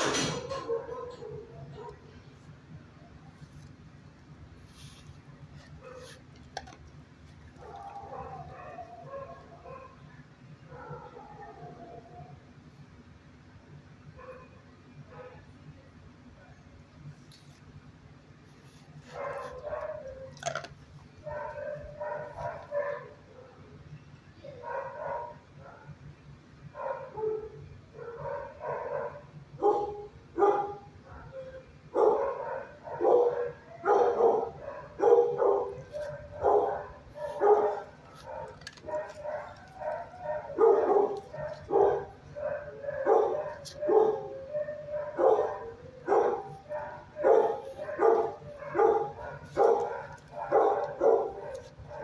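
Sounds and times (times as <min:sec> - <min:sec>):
dogs barking: 0:00.0 - 0:02.2, 0:05.6 - 0:06.3, 0:07.4 - 0:12.3, 0:14.1 - 0:15.5, 0:19.0 - 0:23.8, 0:24.4 - 0:26.0, 0:26.7 - 0:52.0.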